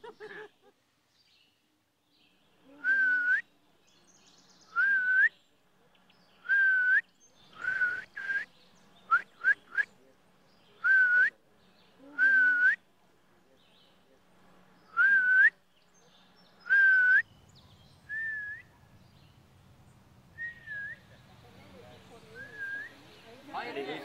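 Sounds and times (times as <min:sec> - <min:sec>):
man whistling bird call: 0:02.8 - 0:03.5, 0:04.7 - 0:05.4, 0:06.4 - 0:09.9, 0:10.8 - 0:11.3, 0:12.2 - 0:12.8, 0:14.9 - 0:15.6, 0:16.7 - 0:17.3, 0:18.1 - 0:18.7, 0:20.4 - 0:21.1, 0:22.4 - 0:23.0.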